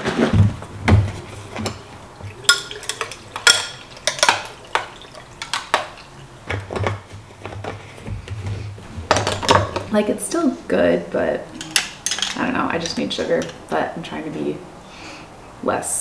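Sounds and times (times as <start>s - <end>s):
glassware clinking: 1.7s - 6.0s, 11.6s - 13.6s.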